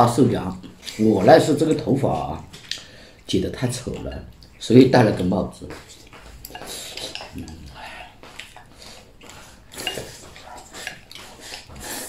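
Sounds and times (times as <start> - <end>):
chopsticks tapping and scraping bowl: 5.6 - 11.9.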